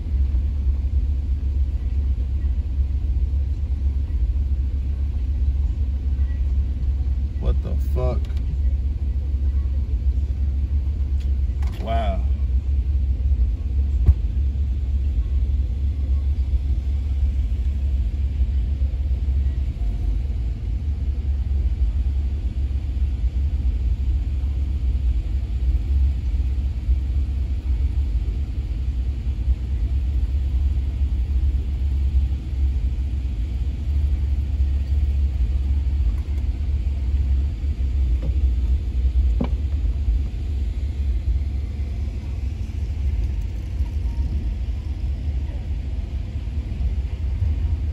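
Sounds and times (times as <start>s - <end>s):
truck idling: 0.0s - 47.9s.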